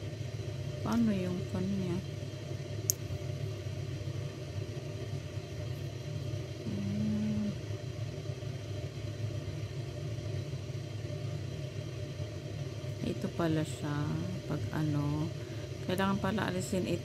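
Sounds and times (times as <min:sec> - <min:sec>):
low background rumble: 0:00.0 - 0:17.0.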